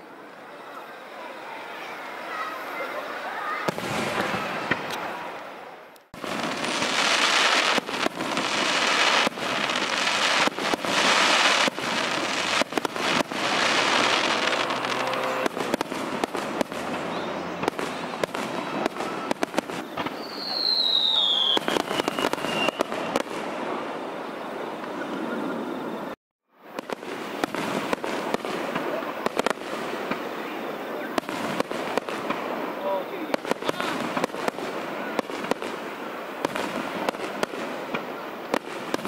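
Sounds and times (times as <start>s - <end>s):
firework crackling: 0.0s - 39.0s
firework shells bursting: 6.0s - 23.5s
high falling whistle: 20.1s - 23.2s.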